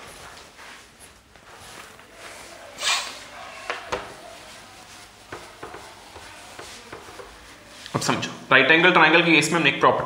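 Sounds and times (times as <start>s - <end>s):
palm rubbing whiteboard: 3.2s - 7.9s.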